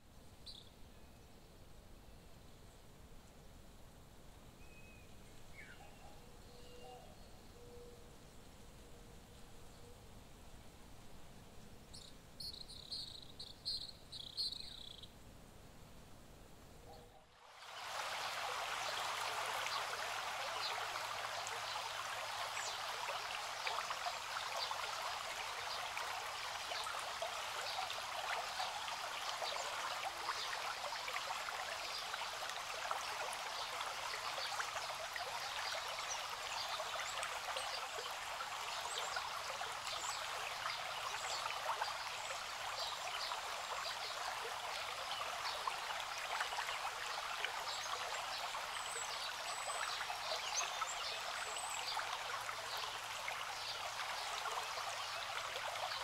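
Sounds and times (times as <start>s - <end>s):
shallow creek trickling: 16.6s - 56.0s.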